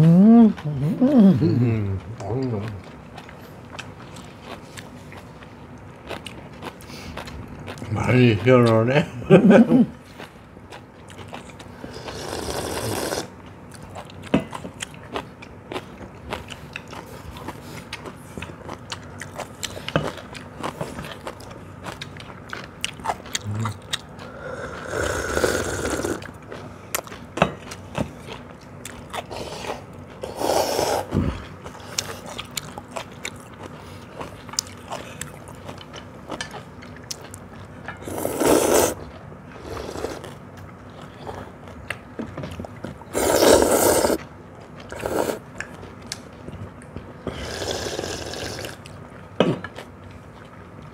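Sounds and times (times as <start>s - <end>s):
chewing: 0.0s - 8.9s, 9.9s - 50.9s
slurping noodles: 11.8s - 13.3s, 24.3s - 26.3s, 29.3s - 31.2s, 38.0s - 40.4s, 43.1s - 44.2s, 44.9s - 45.4s, 47.3s - 48.8s.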